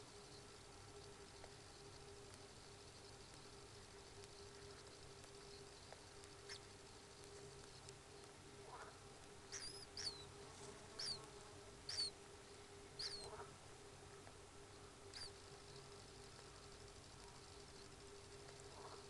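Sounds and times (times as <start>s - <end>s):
steady low hum: 0.0s - 19.0s
faint high bird chirps: 1.2s - 7.9s, 8.7s - 12.2s, 12.9s - 13.5s, 15.1s - 19.0s.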